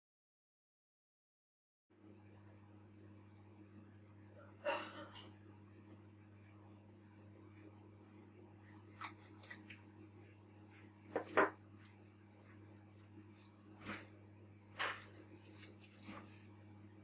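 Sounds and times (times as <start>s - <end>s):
steady low hum: 2.0s - 17.0s
tissue rubbing on glass lens: 11.8s - 16.5s.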